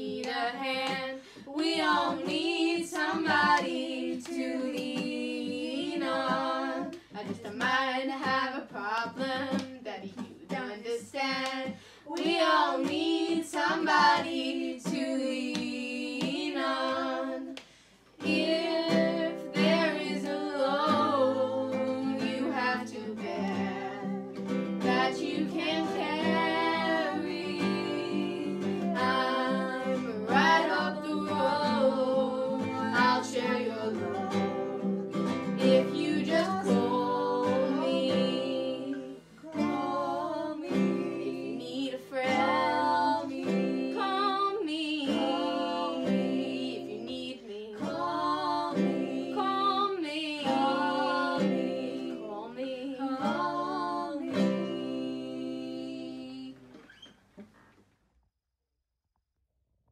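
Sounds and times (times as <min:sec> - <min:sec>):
women singing together: 0:00.0 - 0:17.6, 0:18.2 - 0:56.6
acoustic guitar: 0:00.0 - 0:57.8.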